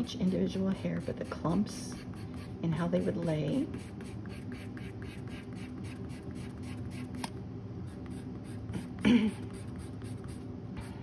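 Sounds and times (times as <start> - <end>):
pencil rubbing on paper: 0.0 - 2.5, 3.7 - 7.2, 7.9 - 10.4.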